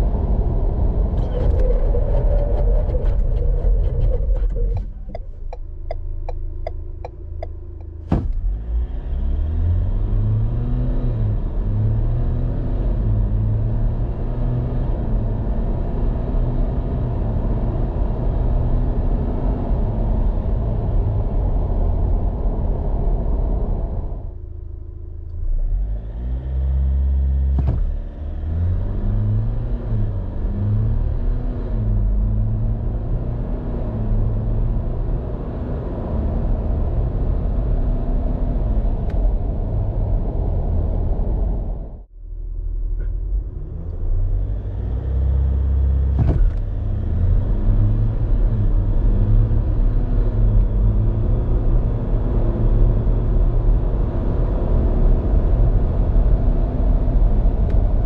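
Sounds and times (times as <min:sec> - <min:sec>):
diesel engine accelerating: 0:00.0 - 0:58.0.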